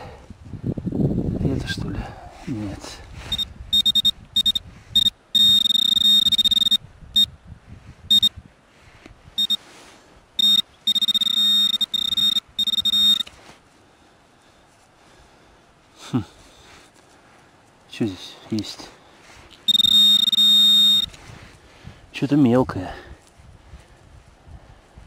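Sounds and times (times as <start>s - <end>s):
metal detector beeps: 3.2s - 7.3s, 8.1s - 8.3s, 9.4s - 9.6s, 10.4s - 13.4s, 19.5s - 21.2s
metal detector steady tone: 3.3s - 7.3s, 8.1s - 8.3s, 9.4s - 9.7s, 10.4s - 13.4s, 19.5s - 21.2s.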